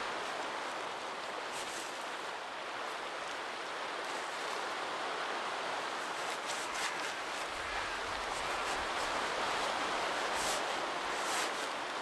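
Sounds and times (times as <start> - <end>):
steady outdoor hiss: 0.0 - 12.0
tent fabric rustling: 6.0 - 12.0.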